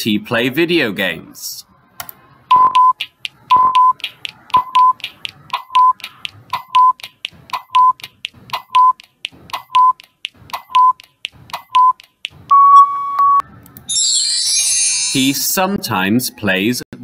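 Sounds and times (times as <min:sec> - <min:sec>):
short beeps: 0:02.5 - 0:04.0, 0:11.7 - 0:13.4
long timer beep: 0:02.5 - 0:05.0, 0:05.6 - 0:06.0, 0:06.6 - 0:07.0, 0:07.6 - 0:09.0, 0:09.6 - 0:10.0, 0:10.6 - 0:11.0, 0:11.7 - 0:13.4
fast clock-like ticking: 0:02.5 - 0:12.5.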